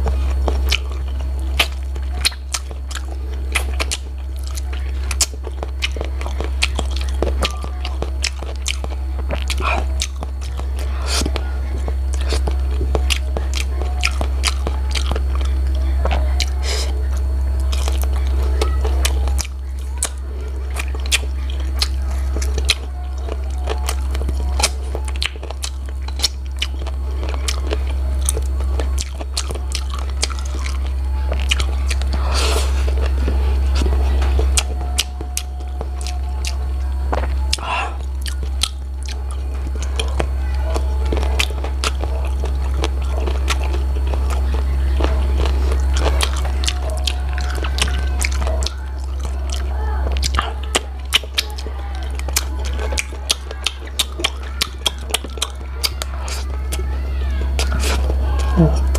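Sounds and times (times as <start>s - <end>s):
chewing and sucking mouth sounds: 0.0s - 58.9s
steady low hum: 0.0s - 58.9s.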